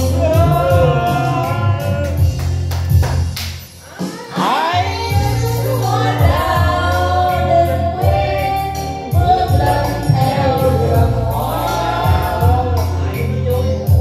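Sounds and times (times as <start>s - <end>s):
amplified backing track: 0.0s - 14.0s
woman singing into a microphone: 4.0s - 13.2s.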